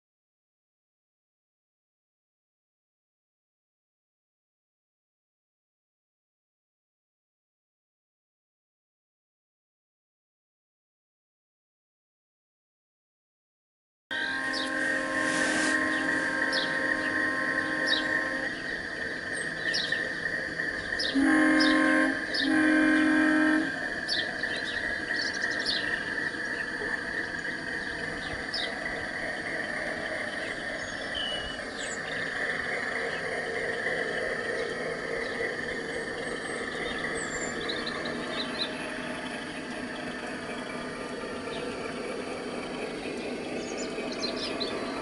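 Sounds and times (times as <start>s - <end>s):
model locomotive horn blasts: 14.1s - 18.6s, 21.1s - 24.3s
diesel engine hum: 14.1s - 45.0s.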